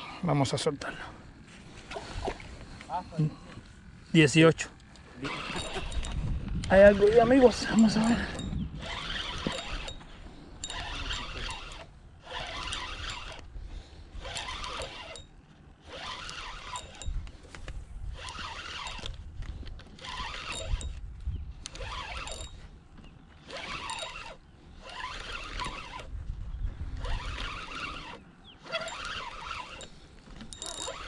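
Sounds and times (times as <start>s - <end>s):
spinning reel cranking: 5.2s - 13.5s, 14.1s - 17.4s, 18.1s - 19.2s, 19.9s - 21.0s, 21.6s - 22.6s, 23.4s - 26.1s, 27.0s - 31.0s.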